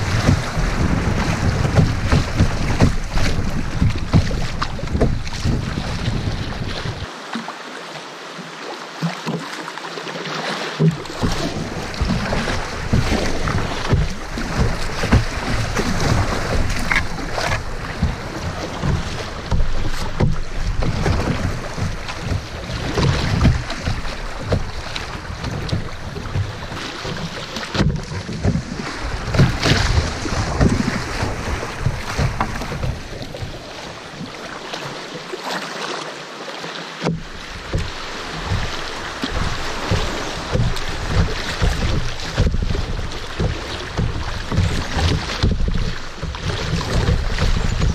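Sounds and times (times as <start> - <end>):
wind buffeting microphone: 0.0 - 7.1, 27.9 - 34.3
water rushing and splashing: 0.0 - 47.9.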